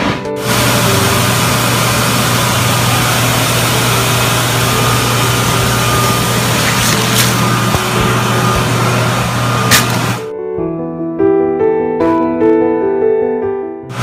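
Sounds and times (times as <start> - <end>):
extraction vacuum running: 0.4 - 10.3.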